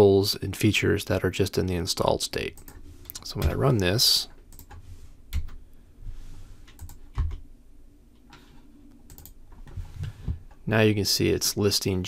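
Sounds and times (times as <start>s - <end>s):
keyboard keystrokes: 9.1s - 9.4s.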